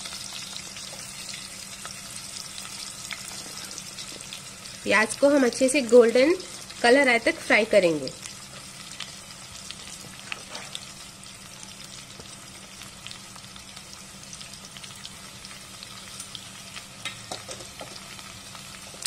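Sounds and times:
onions sizzling in hot oil: 0:00.0 - 0:19.0.

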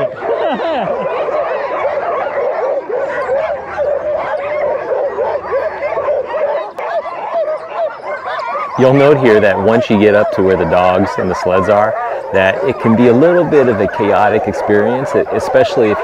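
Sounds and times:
sled dogs barking and yipping: 0:00.0 - 0:16.0.

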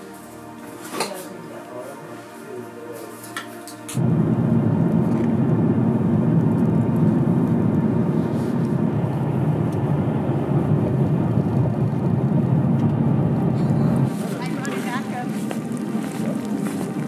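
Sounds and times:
car engine and road noise: 0:04.0 - 0:17.0.

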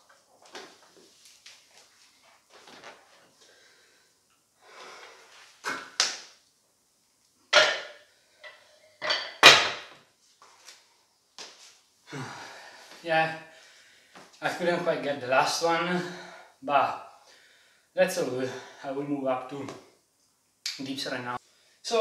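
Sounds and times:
dumbbells knocking and clanking: 0:07.5 - 0:10.0.

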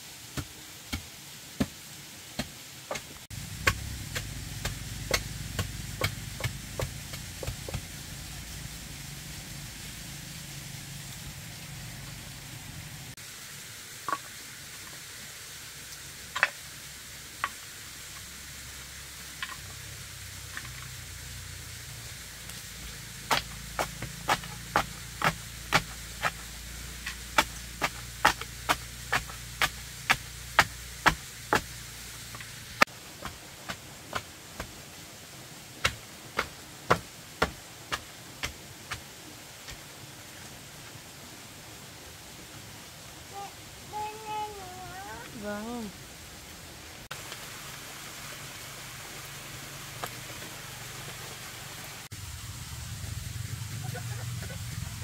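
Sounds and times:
low hum: 0:03.3 - 0:13.2, 0:52.1 - 0:55.0.

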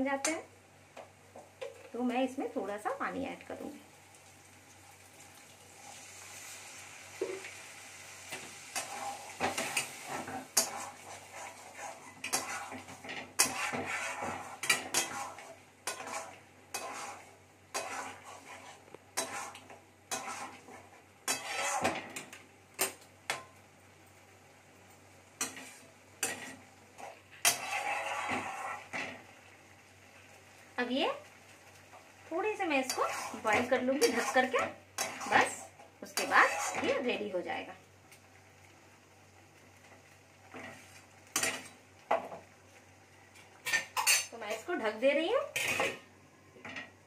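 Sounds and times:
hot pan sizzling: 0:00.0 - 0:47.0
metal spatula scraping pan: 0:08.3 - 0:22.3, 0:25.4 - 0:29.2, 0:32.8 - 0:37.1, 0:45.4 - 0:46.0.

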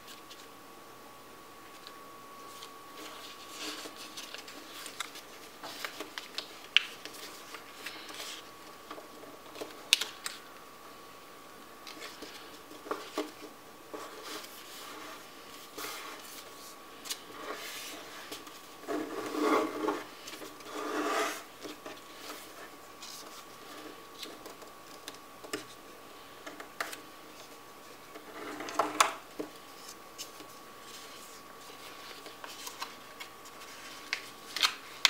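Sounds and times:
faint high hum: 0:00.0 - 0:35.0
paper crinkling: 0:01.7 - 0:10.5, 0:29.4 - 0:35.0.

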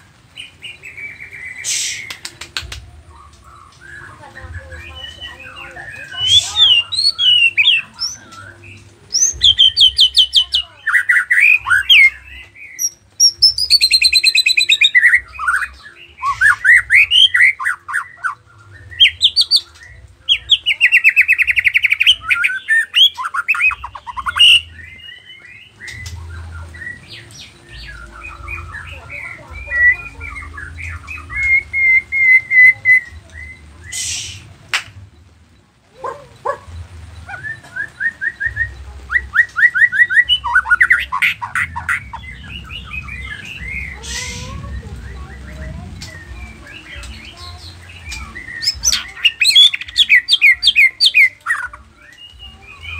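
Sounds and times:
bird singing trills and whistles: 0:00.0 - 0:34.7, 0:36.0 - 0:52.9
bird chirping: 0:00.0 - 0:52.9
short hiss: 0:01.6 - 0:02.5, 0:33.9 - 0:34.5.

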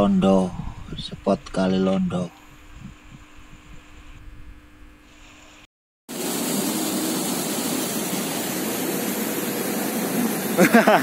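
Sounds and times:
faint low rumble: 0:00.0 - 0:05.0
steady low hum: 0:00.0 - 0:11.0.

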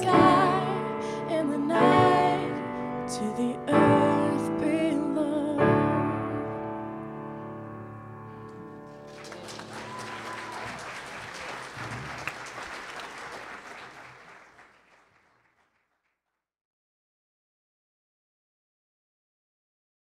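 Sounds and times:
piano chord: 0:00.0 - 0:09.1
audience applauding: 0:08.6 - 0:16.0.

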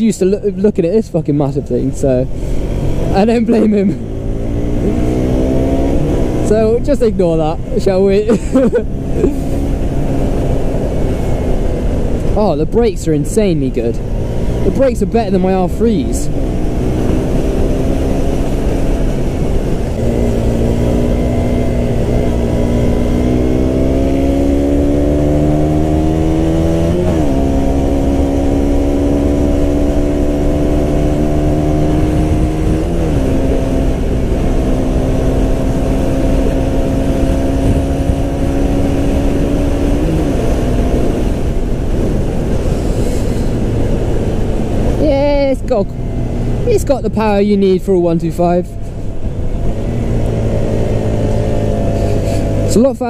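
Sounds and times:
motorcycle engine accelerating: 0:01.3 - 0:53.0.

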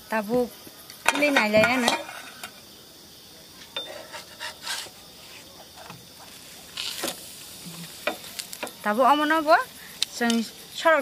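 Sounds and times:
metal spatula scraping griddle: 0:01.2 - 0:02.6, 0:03.8 - 0:05.6, 0:06.3 - 0:08.6.

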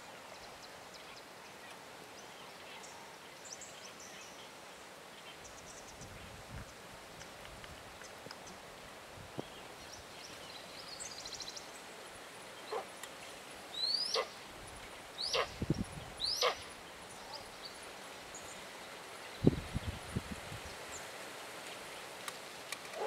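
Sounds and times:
animal yelping calls: 0:15.3 - 0:15.6, 0:16.3 - 0:16.6.

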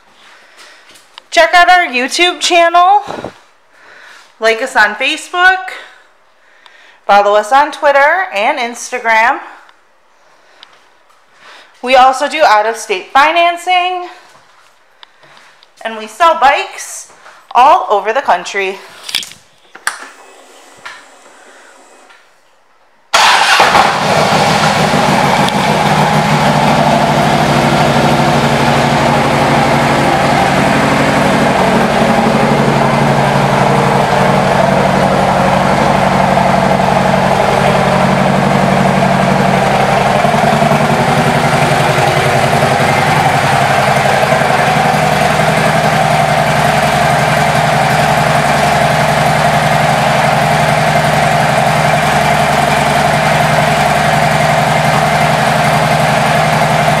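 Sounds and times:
motorcycle engine idling: 0:23.4 - 0:57.0.

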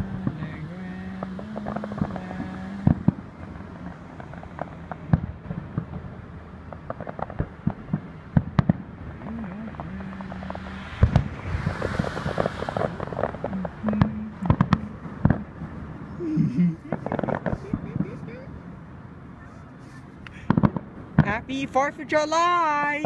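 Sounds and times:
firework hissing crackle: 0:00.0 - 0:16.2, 0:16.8 - 0:18.6
firework shells bursting: 0:01.2 - 0:16.0, 0:16.8 - 0:18.5.

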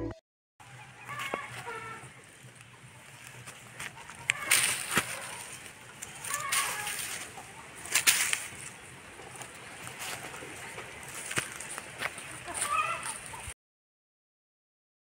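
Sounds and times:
rustling of dry leaf litter: 0:00.6 - 0:13.5
twigs clicking: 0:02.4 - 0:07.3, 0:07.9 - 0:10.3.

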